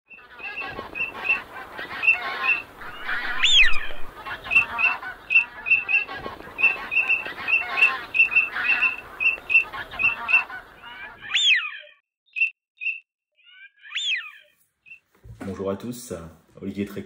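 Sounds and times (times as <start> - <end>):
geese honking: 0.1 - 11.9.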